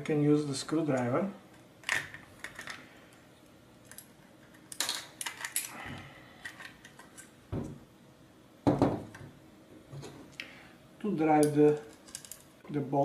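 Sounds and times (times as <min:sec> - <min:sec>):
small parts clicking and clattering: 0:01.5 - 0:02.9, 0:03.8 - 0:07.4, 0:11.3 - 0:12.6.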